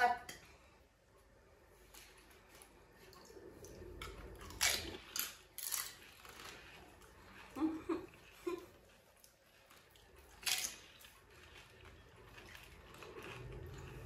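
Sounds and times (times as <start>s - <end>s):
crisp shells crunching when chewed: 8.1s - 14.0s.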